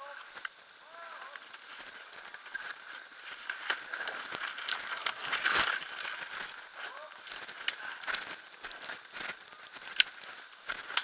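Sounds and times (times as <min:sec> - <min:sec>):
rustling in brush: 0:00.1 - 0:11.0
twigs snapping and crackling: 0:00.2 - 0:11.0.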